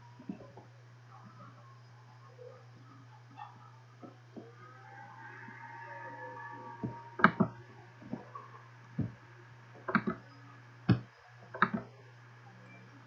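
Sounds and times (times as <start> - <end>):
steady low hum: 0.0 - 13.0
mouse buttons clicking: 7.2 - 7.6, 9.9 - 10.2, 10.9 - 11.9.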